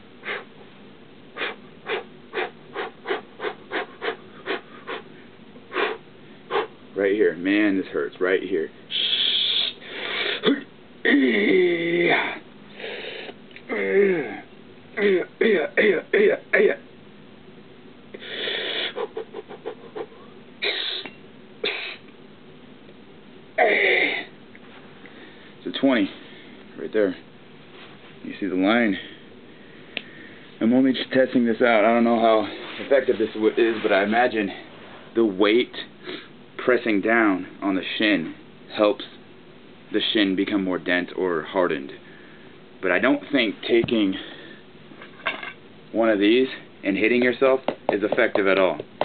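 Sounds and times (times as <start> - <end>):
man's sharp quick breaths: 1.4 - 6.8, 8.9 - 10.5
short sharp breaths: 8.9 - 10.5, 29.0 - 30.6
man vocalizing in pain: 10.4 - 12.4, 13.7 - 15.7.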